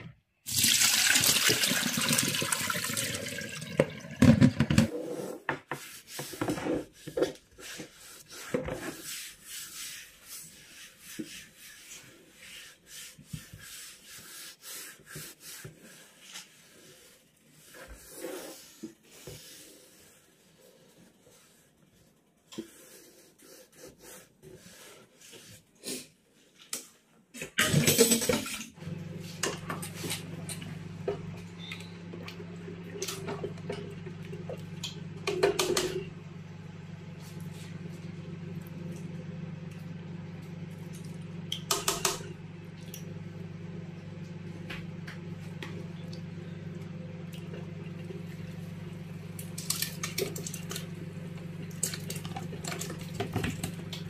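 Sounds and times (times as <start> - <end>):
steady low hum: 28.8 - 54.0
ladle stirring and knocking in pot: 33.0 - 36.1.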